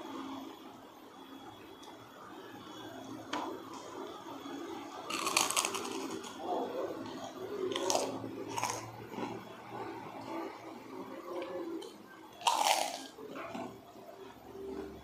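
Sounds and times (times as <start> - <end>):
cracker crunching: 5.1 - 6.4, 7.7 - 9.3, 12.4 - 13.7
sharp cracker bites: 5.1 - 6.4, 12.4 - 13.1.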